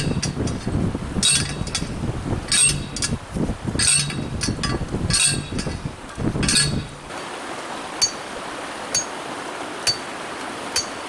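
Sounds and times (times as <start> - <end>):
post driver striking metal rod: 0.0 - 3.2, 3.8 - 7.0
light metallic pings: 9.8 - 10.1.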